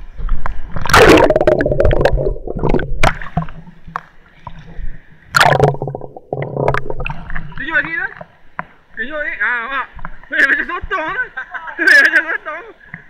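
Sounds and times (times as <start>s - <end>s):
muffled underwater rumbling: 0.0s - 8.0s
water splashing and gurgling: 0.3s - 8.2s.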